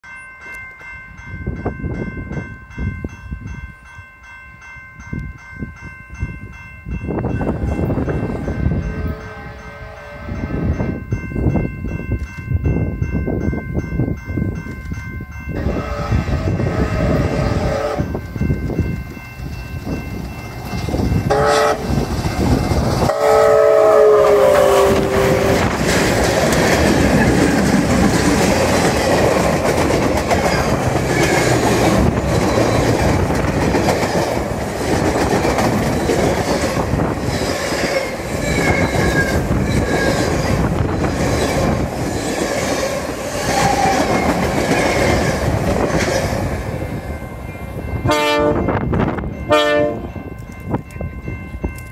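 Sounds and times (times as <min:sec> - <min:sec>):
crossing bell ringing: 0:00.0 - 0:51.9
train rushing rumble: 0:15.4 - 0:51.9
steam whistle blasts: 0:15.6 - 0:18.1, 0:21.3 - 0:21.9, 0:23.1 - 0:25.7
wheels clickety-clack over rails: 0:24.2 - 0:46.9.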